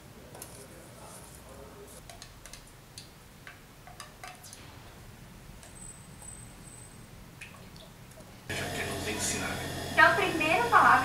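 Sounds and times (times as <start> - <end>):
wooden stick tapping steel pot: 3.4 - 4.4.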